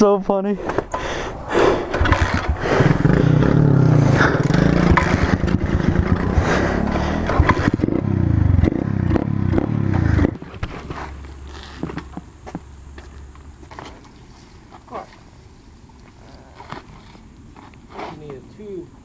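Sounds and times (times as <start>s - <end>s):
dirt bike engine running: 1.7s - 11.0s.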